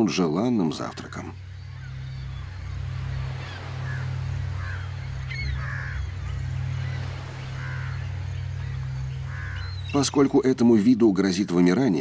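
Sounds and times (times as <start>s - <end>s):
crows cawing: 1.6s - 9.9s.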